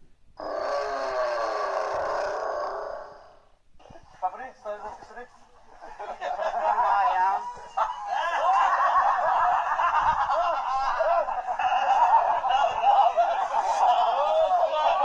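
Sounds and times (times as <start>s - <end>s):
men laughing together: 5.7s - 15.0s.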